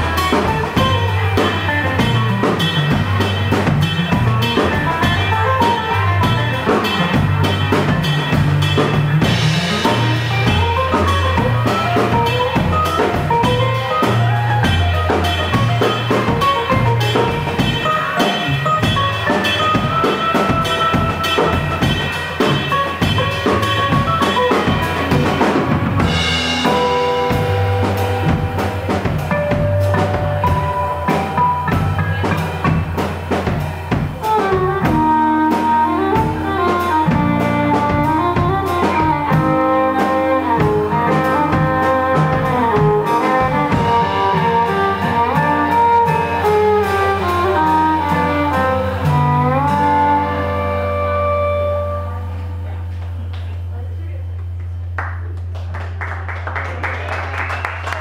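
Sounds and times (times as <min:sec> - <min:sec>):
drum kit playing busy beat: 0:00.0 - 0:53.3
violin melody: 0:34.2 - 0:52.7.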